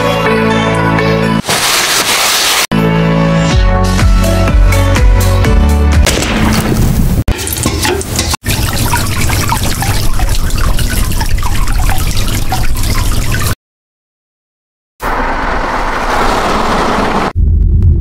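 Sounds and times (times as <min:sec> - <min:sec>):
water running and splashing: 0:07.3 - 0:13.6
bubbling blips: 0:08.4 - 0:13.6.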